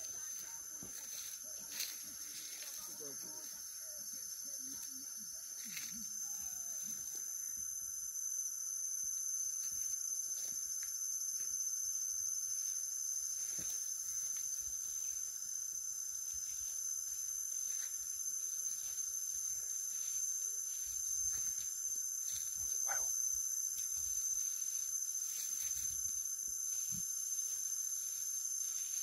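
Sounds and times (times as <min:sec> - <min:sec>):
insect drone: 0:00.0 - 0:29.0
rustling in grass: 0:00.1 - 0:03.6, 0:24.0 - 0:29.0.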